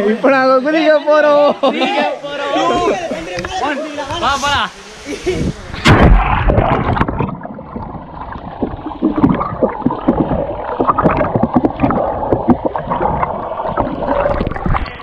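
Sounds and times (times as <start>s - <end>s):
loud splash: 5.8s - 15.0s
muffled water sloshing and gurgling: 5.8s - 15.0s.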